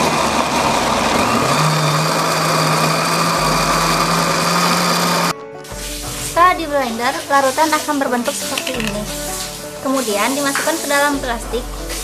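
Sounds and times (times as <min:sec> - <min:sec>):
blender running: 0:00.0 - 0:05.3.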